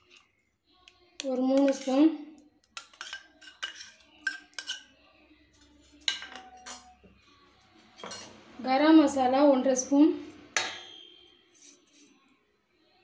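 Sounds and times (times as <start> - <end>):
metal spoon clinking on steel bowl: 1.2 - 2.0, 2.6 - 4.9, 6.0 - 7.0, 8.0 - 8.3.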